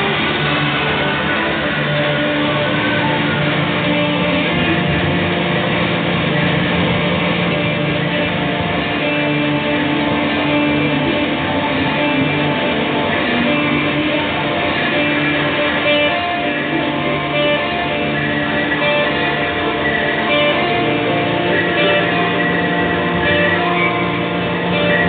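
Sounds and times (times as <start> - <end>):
droning experimental music: 0.0 - 25.0.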